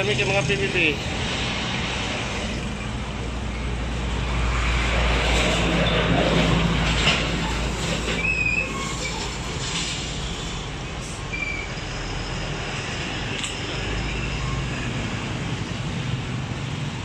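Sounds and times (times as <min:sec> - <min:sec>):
passing traffic rumble: 0:00.0 - 0:17.0.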